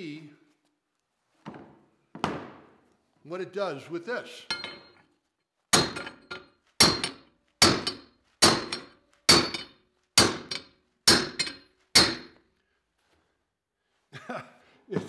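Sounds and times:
hammer pounding steel: 0:05.7 - 0:12.4.

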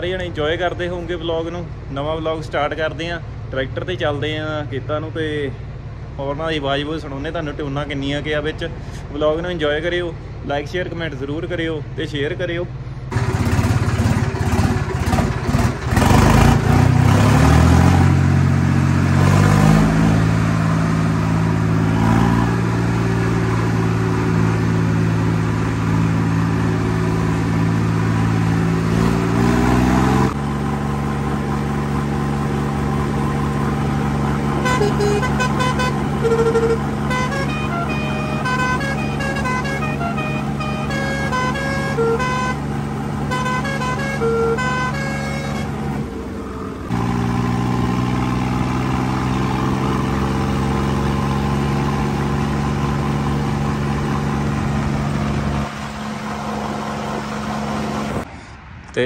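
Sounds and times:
tractor diesel engine: 0:00.0 - 0:59.0
musical air horn: 0:34.6 - 0:45.8.

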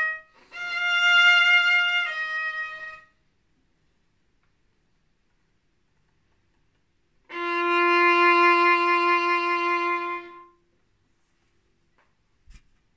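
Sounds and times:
violin long bowed note: 0:00.0 - 0:03.1, 0:07.3 - 0:10.6.

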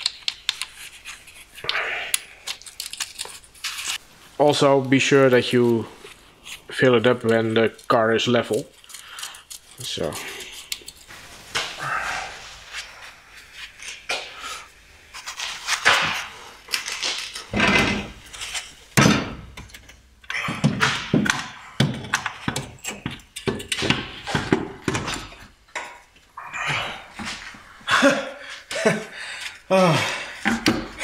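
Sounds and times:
heavy metal thunks and clanks: 0:17.5 - 0:18.2, 0:19.0 - 0:19.9.

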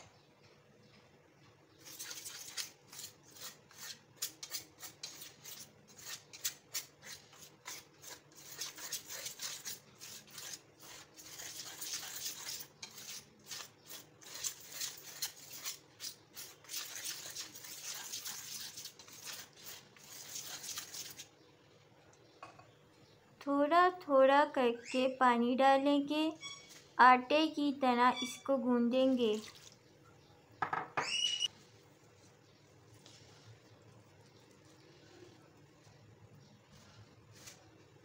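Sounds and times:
wire whisk scraping metal bowl: 0:01.8 - 0:21.3.

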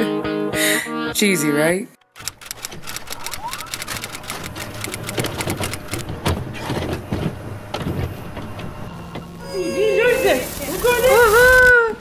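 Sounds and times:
mechanical clicks and knocks: 0:02.0 - 0:07.0.

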